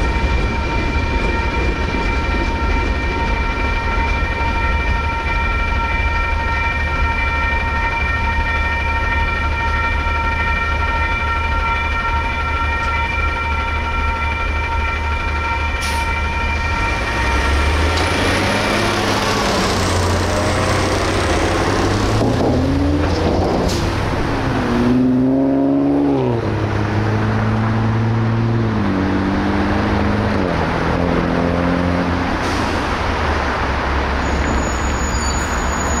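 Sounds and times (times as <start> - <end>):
railroad crossing bell: 0.0 - 23.0
cars driving past: 16.6 - 36.0.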